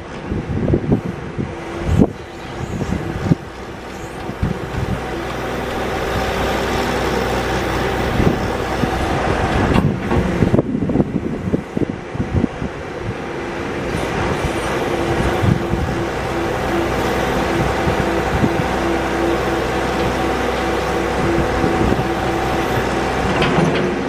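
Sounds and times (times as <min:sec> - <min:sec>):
diesel engine under load: 0:00.0 - 0:24.0
steady tone: 0:01.0 - 0:12.1, 0:13.6 - 0:23.4
knocks and clanks: 0:02.9 - 0:08.7, 0:23.1 - 0:24.0.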